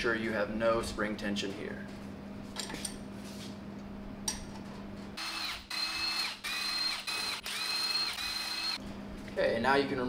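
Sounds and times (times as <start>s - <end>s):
power driver motor whine: 5.2s - 8.8s.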